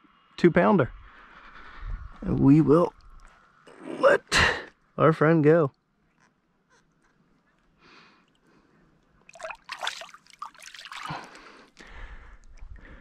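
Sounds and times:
low rumble: 0.8s - 3.3s
water splashing around hands: 9.2s - 11.8s.

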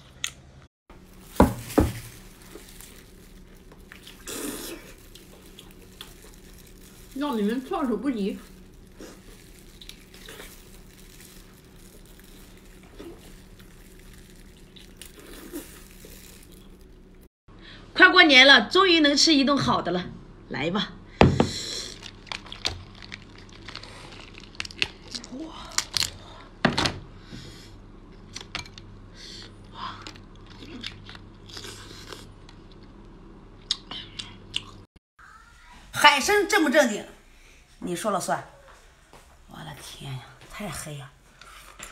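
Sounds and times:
steady low hum: 0.3s - 18.0s
person chewing: 1.0s - 7.2s, 8.4s - 17.3s, 29.4s - 33.0s
wet slurping and squishing: 2.2s - 17.3s.

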